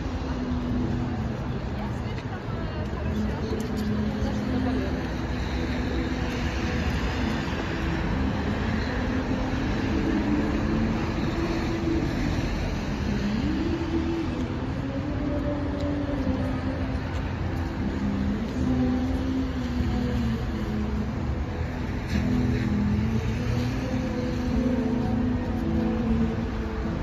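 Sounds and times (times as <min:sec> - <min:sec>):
traffic noise: 0:00.0 - 0:27.0
humming vehicle tone: 0:03.2 - 0:27.0.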